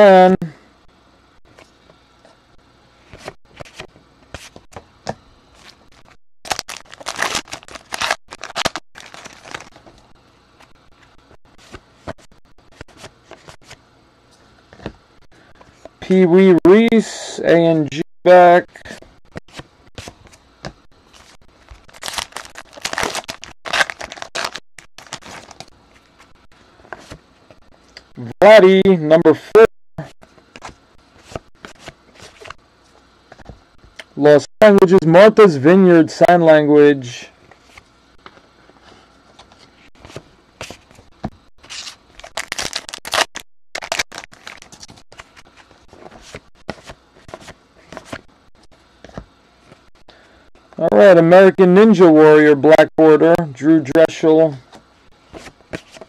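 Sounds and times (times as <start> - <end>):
wrapper crinkling and tearing: 6.5 - 9.8, 21.8 - 25.7, 41.7 - 45.4
cards being handled: 6.5 - 13.8, 19.3 - 26.3, 26.9 - 27.2, 30.3 - 32.6, 37.5 - 48.3, 54.7 - 56.0.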